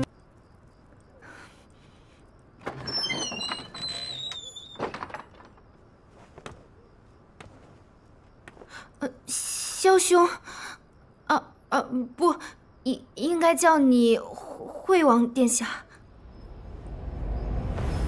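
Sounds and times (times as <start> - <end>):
wooden door creaking open: 2.6 - 6.7.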